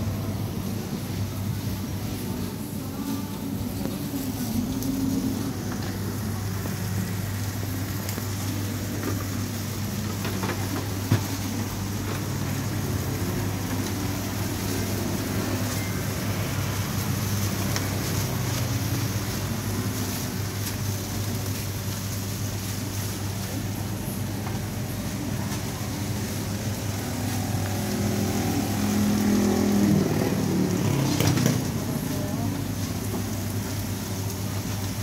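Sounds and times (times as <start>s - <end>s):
low machine hum: 0.0s - 35.0s.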